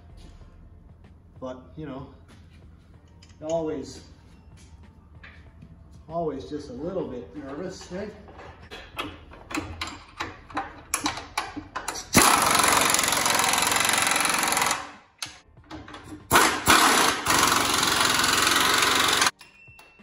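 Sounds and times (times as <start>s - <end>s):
light metal clicks and knocks: 7.4s - 12.1s
pneumatic impact wrench running: 11.9s - 15.1s, 16.1s - 19.3s.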